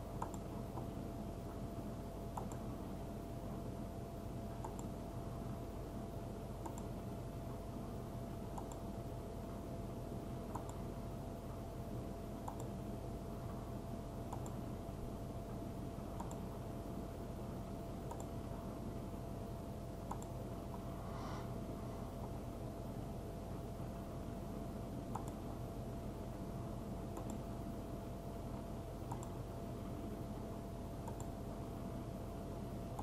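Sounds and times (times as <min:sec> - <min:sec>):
electrical hum and hiss: 0:00.0 - 0:33.0
computer mouse clicking: 0:00.2 - 0:00.9, 0:02.3 - 0:02.7, 0:04.6 - 0:05.0, 0:06.6 - 0:07.0, 0:08.5 - 0:08.9, 0:10.5 - 0:10.8, 0:12.4 - 0:12.8, 0:14.3 - 0:14.6, 0:16.1 - 0:16.5, 0:18.0 - 0:18.4, 0:20.0 - 0:20.9, 0:25.1 - 0:25.5, 0:27.1 - 0:27.5, 0:29.0 - 0:29.4, 0:31.0 - 0:31.4.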